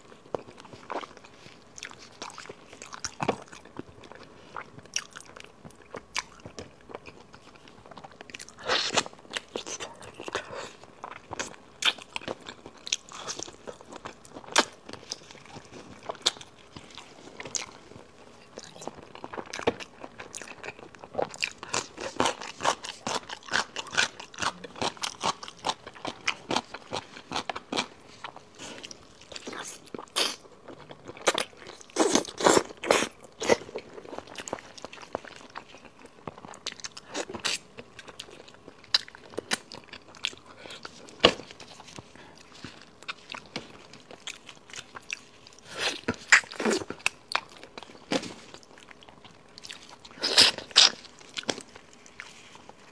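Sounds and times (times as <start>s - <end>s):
wet chewing and lip-smacking: 0.2s - 52.9s.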